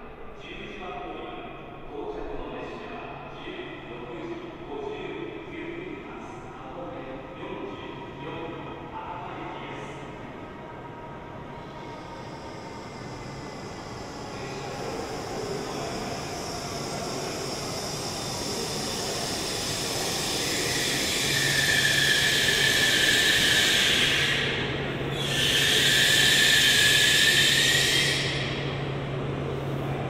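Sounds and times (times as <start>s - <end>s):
train rushing hiss: 11.5s - 30.0s.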